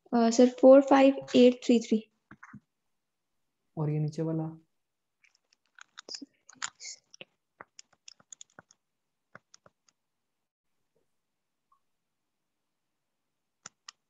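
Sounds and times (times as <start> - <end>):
faint sharp clicks and taps: 5.2 - 10.0.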